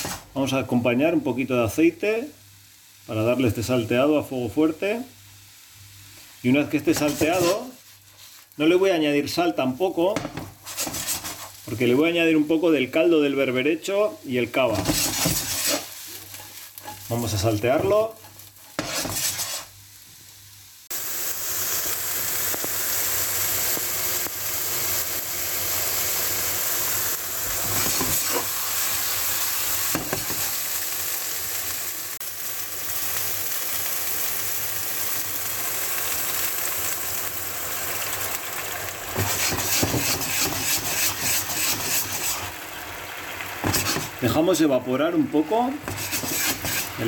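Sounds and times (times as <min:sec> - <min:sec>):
mushrooms sizzling in a wok: 0:00.0 - 0:47.0
liquid boiling off in a pan: 0:01.6 - 0:47.0
stirring strokes in a pan: 0:05.7 - 0:20.2, 0:23.6 - 0:30.8, 0:39.1 - 0:42.6, 0:43.3 - 0:44.5, 0:45.5 - 0:47.0.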